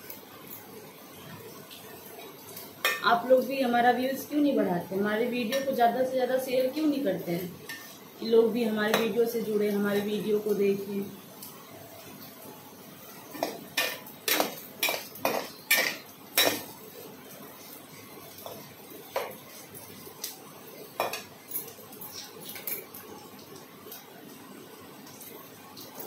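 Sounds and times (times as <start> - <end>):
knife clinking against steel bowl: 13.4 - 16.7.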